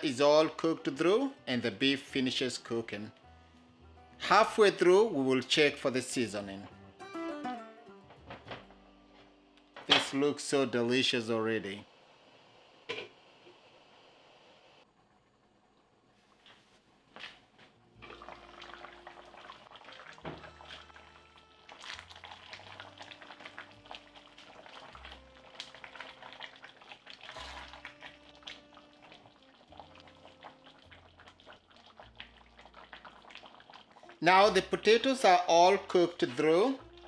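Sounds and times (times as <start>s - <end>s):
soft background music: 0.0s - 11.8s, 17.4s - 37.0s
stew bubbling in a pot: 17.4s - 37.0s.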